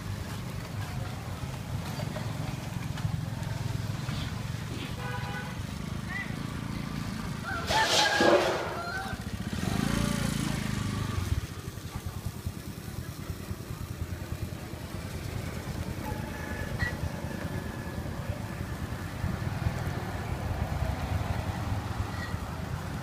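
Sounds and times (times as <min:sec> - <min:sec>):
motorbike engines rumbling: 0:00.0 - 0:23.0.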